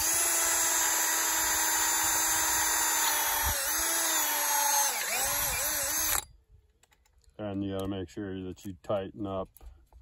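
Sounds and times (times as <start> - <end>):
cordless drill boring into steel: 0.0 - 6.3.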